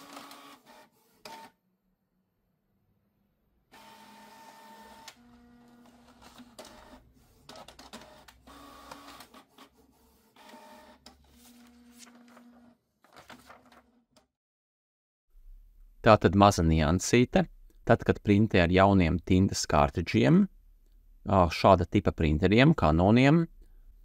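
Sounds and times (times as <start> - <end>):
printer motors whirring: 3.7 - 9.7.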